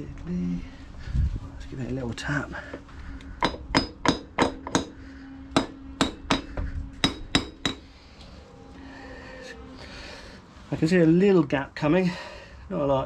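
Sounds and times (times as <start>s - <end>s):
hammer tapping on metal: 3.4s - 7.9s.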